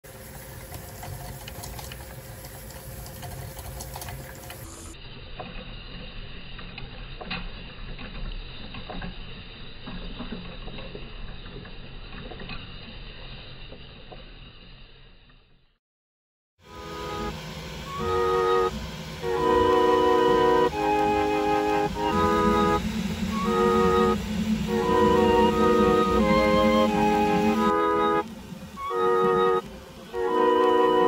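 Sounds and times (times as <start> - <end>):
steady hum: 16.6 - 31.0
polishing machine motor whirring: 16.7 - 31.0.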